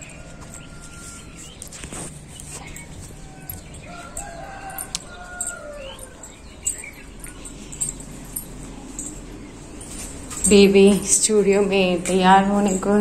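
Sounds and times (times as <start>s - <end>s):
rooster crowing: 0.0s - 1.7s, 2.8s - 8.4s.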